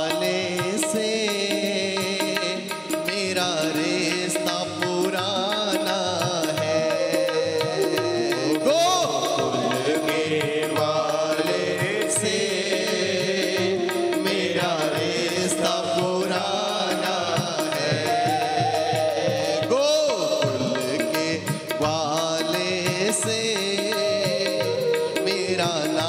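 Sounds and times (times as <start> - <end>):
instrumental accompaniment: 0.0 - 26.0
man singing into microphone: 0.0 - 26.0
congregation singing along: 7.8 - 22.0.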